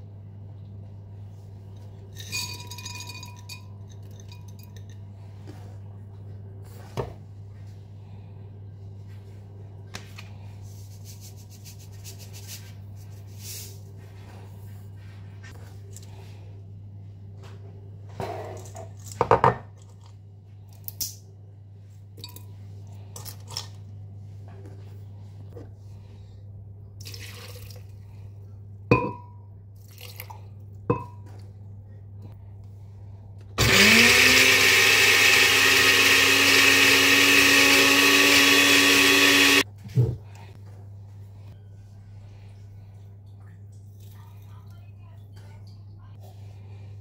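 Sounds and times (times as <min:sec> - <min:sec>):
steady low hum: 0:00.0 - 0:18.8, 0:19.8 - 0:33.6
glass bowl clinking on jug: 0:02.2 - 0:04.9, 0:28.9 - 0:29.4, 0:30.9 - 0:31.2.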